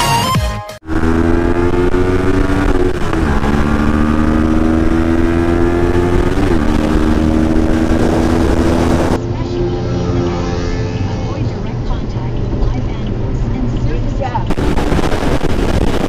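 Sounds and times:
motorcycle engine accelerating: 0.8s - 11.8s, 14.5s - 16.0s
wind rushing over microphone: 0.9s - 9.4s, 14.4s - 16.0s.

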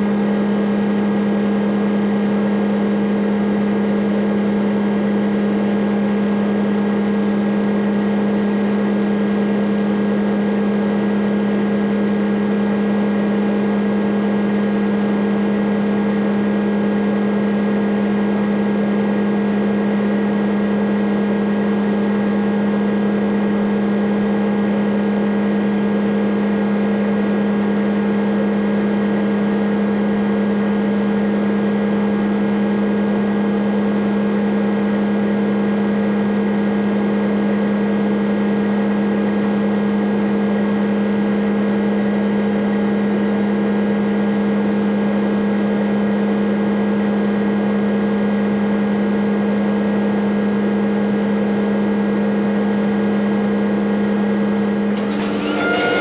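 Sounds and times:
excavator diesel engine droning: 54.9s - 56.0s.

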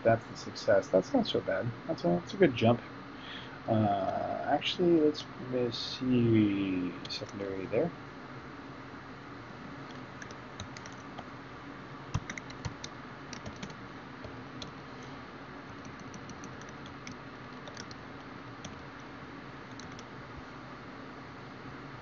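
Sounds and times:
low room noise hiss: 0.0s - 22.0s
computer keyboard typing: 9.9s - 11.2s, 12.1s - 14.7s, 15.7s - 18.0s, 18.6s - 18.8s, 19.7s - 20.1s.

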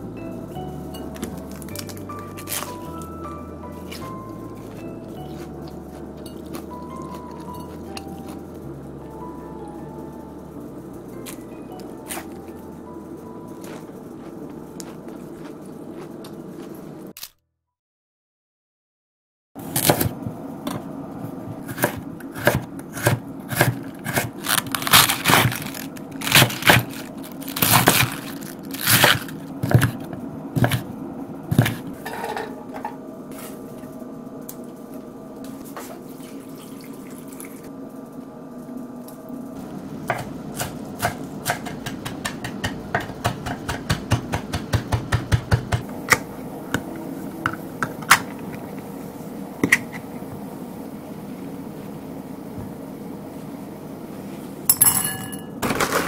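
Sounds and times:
kitchen hum: 0.0s - 17.2s, 19.6s - 56.0s
knife chopping on wooden board: 40.1s - 45.9s.

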